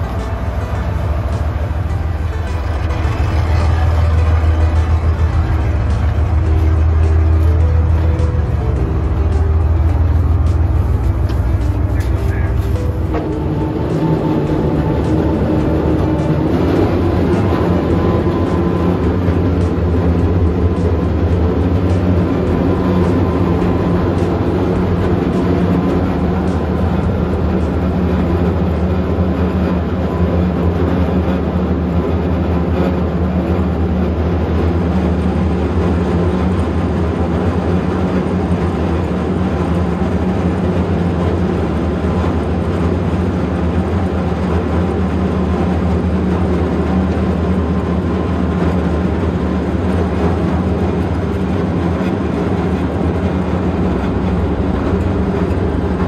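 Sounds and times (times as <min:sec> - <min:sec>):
rushing noise: 0:00.0 - 0:56.0
ship engines droning: 0:00.0 - 0:56.0.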